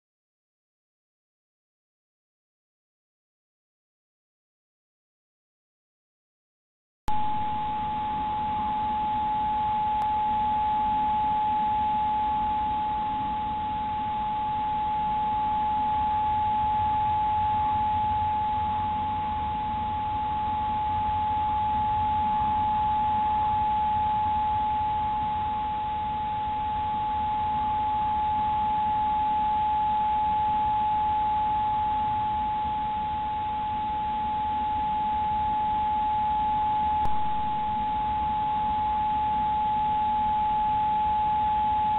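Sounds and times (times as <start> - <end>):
faint low tone: 7.1 - 11.7, 37.0 - 38.7
high-pitched electronic whine: 7.1 - 41.9.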